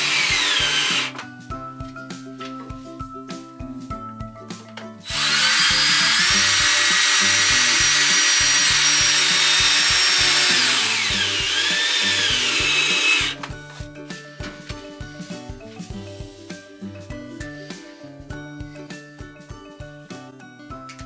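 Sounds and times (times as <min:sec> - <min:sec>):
cordless drill whining: 0:00.0 - 0:01.2, 0:05.0 - 0:13.5.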